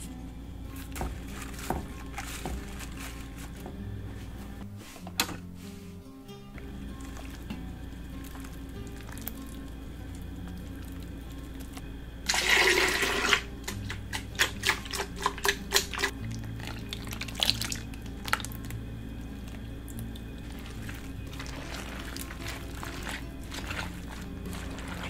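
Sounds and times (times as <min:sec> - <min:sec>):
soft wet splats and plops: 0:06.6 - 0:11.8
wet paste rushing out: 0:20.4 - 0:25.0.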